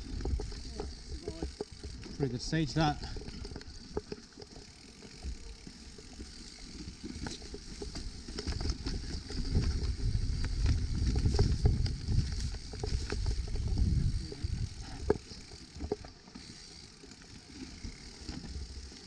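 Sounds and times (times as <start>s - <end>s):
bike rattling clicks: 0.0s - 19.0s
mountain bike rolling on trail: 0.0s - 19.0s.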